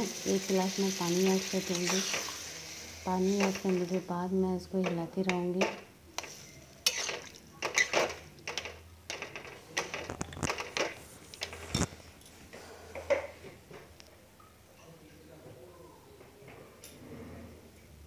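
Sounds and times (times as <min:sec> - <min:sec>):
spatula scraping metal pan: 0:00.7 - 0:03.9.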